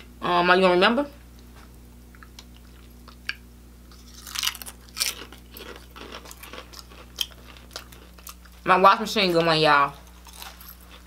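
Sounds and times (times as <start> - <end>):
chewing crunchy food: 2.1 - 8.7, 10.0 - 11.0.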